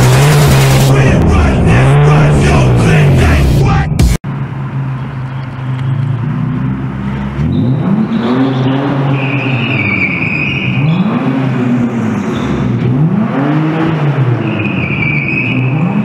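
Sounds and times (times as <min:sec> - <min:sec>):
car engine revving: 0:00.0 - 0:16.0
tyres squealing on concrete: 0:07.5 - 0:11.2, 0:14.4 - 0:16.0.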